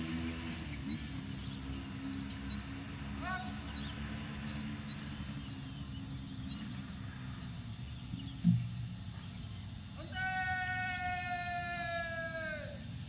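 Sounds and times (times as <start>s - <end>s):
faint bird chirps: 0.4s - 10.5s.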